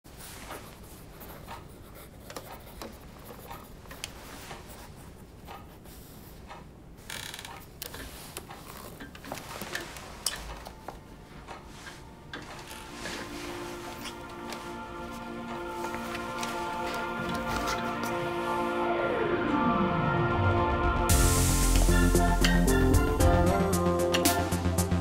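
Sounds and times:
pencils scratching on paper: 0.1s - 6.5s, 11.7s - 18.6s
paper rustling: 11.8s - 18.6s.

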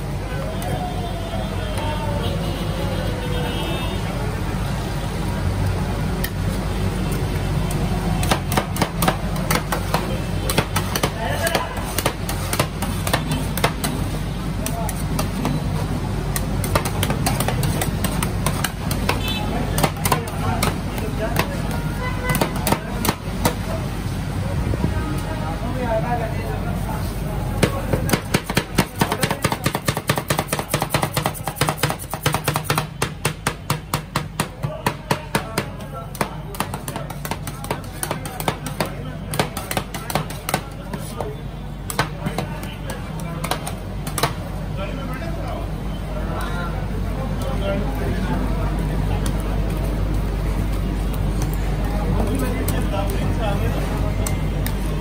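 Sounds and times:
metal spatulas tapping and scraping: 7.7s - 15.7s, 16.3s - 23.6s, 27.6s - 44.4s.

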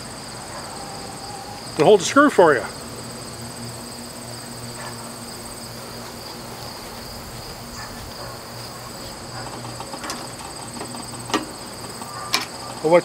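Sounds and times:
insects trilling: 0.0s - 13.0s.

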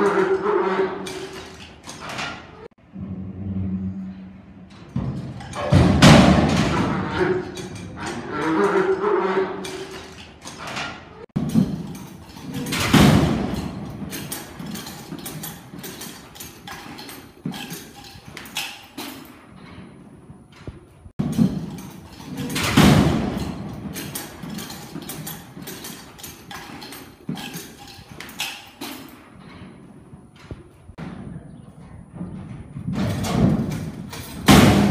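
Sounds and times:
steel gates clanking: 0.0s - 3.0s, 3.7s - 30.6s, 32.9s - 34.9s
hooves thudding in dirt: 11.4s - 34.9s.

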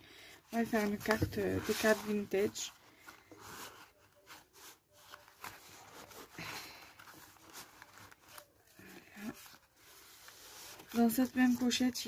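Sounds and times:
soft scrapes and taps: 0.6s - 3.9s
paper rustling and sliding: 0.6s - 12.0s.

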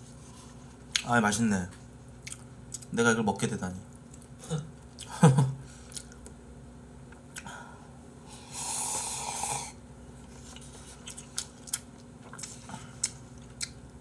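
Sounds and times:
person slurping noodles: 8.3s - 9.8s.

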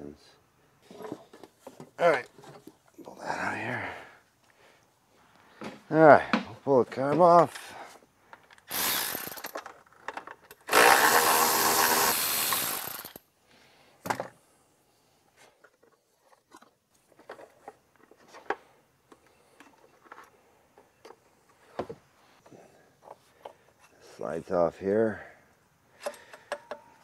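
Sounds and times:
power tool running: 8.7s - 9.5s, 10.6s - 13.2s.

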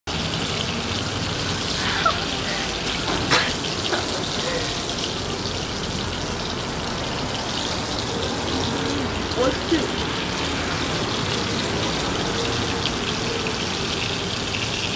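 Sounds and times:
steak sizzling in a pan: 0.1s - 14.9s.

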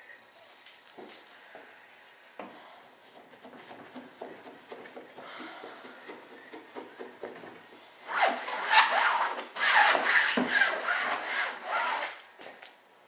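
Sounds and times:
brush rubbing fibreglass cloth: 8.0s - 12.2s.

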